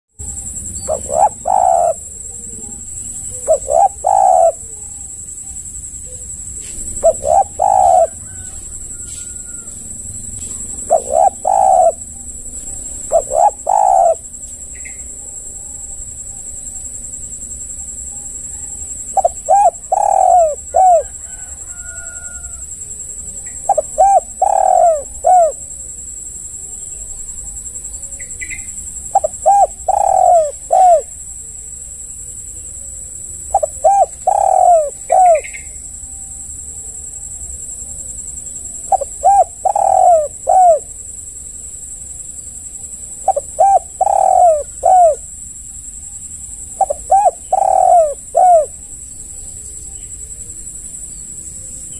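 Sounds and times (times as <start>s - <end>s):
dove cooing: 0.3s - 5.4s, 6.0s - 9.8s, 10.4s - 14.9s, 19.0s - 22.7s, 23.4s - 25.9s, 29.0s - 31.2s, 33.5s - 35.6s, 38.8s - 41.0s, 43.2s - 45.3s, 46.6s - 49.5s.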